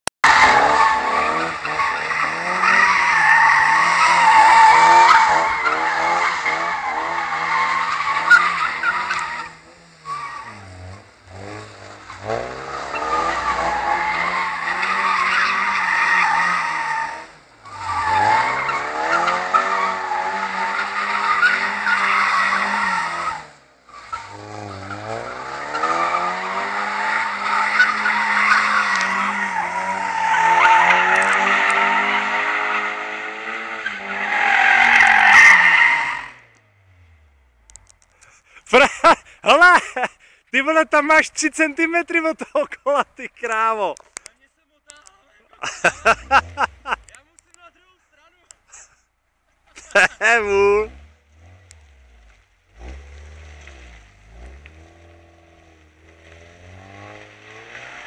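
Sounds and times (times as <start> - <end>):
tyres squealing: 0.2 - 36.5, 40.6 - 47.8
car engine at high revs: 0.2 - 38.4, 45.6 - 47.6, 49.6 - 58.0.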